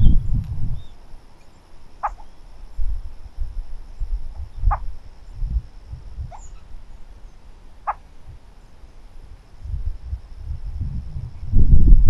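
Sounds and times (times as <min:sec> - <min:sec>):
low patchy rumble: 0:00.0 - 0:12.0
sharp animal calls: 0:02.0 - 0:02.4, 0:04.3 - 0:04.9, 0:06.3 - 0:06.8, 0:07.8 - 0:08.2.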